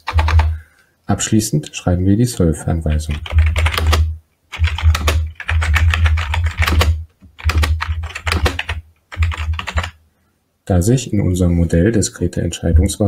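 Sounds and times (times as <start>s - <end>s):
computer keyboard typing: 0.0s - 0.6s, 3.0s - 10.0s.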